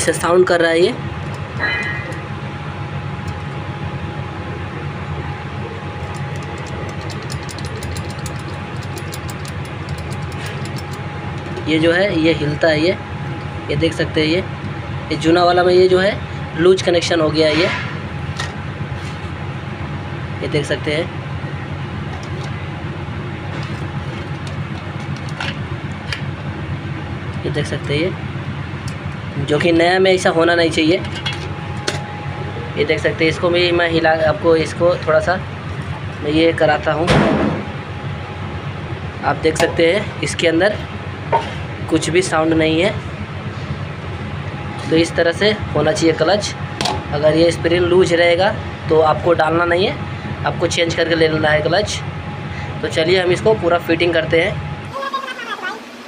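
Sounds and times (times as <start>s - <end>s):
steady low rumble: 0.0s - 54.9s
clutch disc clicking and rattling: 6.0s - 11.7s.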